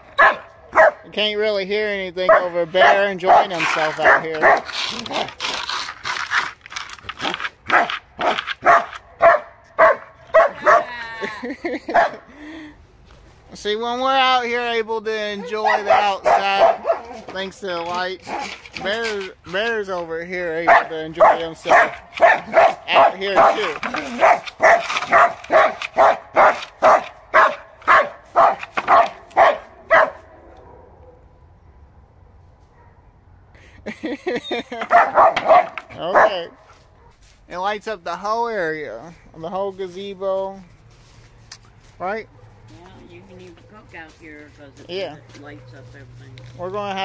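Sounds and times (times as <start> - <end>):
dog barking: 0.1 - 1.1, 2.3 - 5.3, 7.7 - 10.9, 11.9 - 12.3, 15.4 - 17.3, 20.6 - 31.3, 32.7 - 33.1, 34.7 - 37.2.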